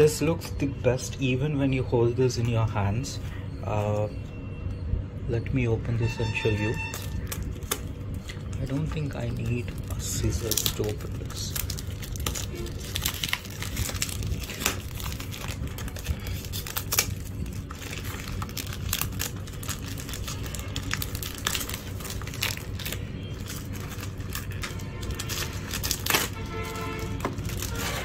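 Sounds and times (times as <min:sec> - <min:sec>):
cellophane crinkling and tearing: 0:06.4 - 0:28.0.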